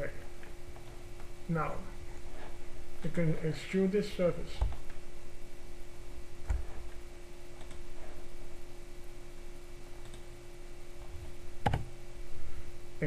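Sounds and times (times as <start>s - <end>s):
steady low hum: 0.0s - 13.0s
computer mouse clicks: 7.6s - 7.8s, 10.0s - 10.3s, 11.6s - 11.9s.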